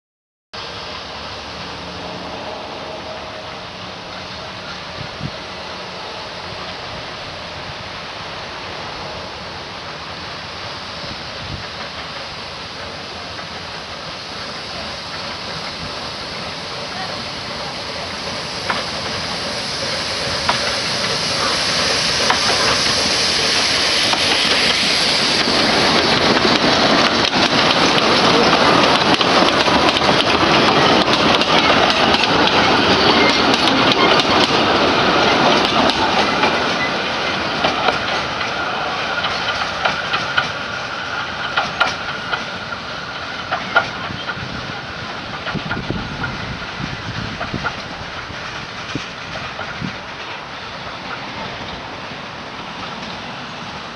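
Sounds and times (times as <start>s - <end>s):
steam locomotive passing: 0.6s - 53.9s
wheels clicking over rail joints: 11.4s - 51.9s.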